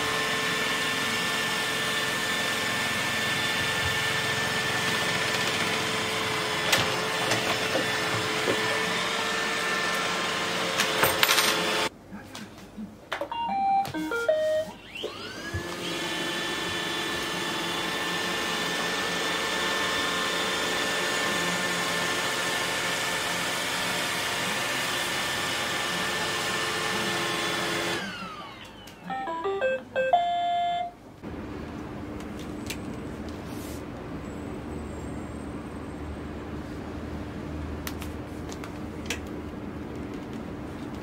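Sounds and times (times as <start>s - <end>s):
vacuum motor whine: 0.0s - 11.0s, 13.5s - 29.4s
robot vacuum beep tune: 13.3s - 15.2s, 29.1s - 31.0s.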